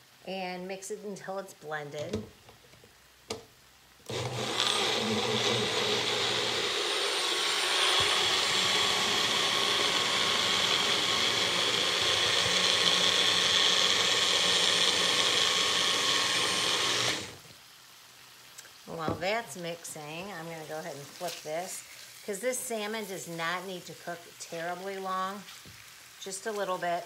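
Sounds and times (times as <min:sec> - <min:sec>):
blender motor running: 0:04.1 - 0:17.4.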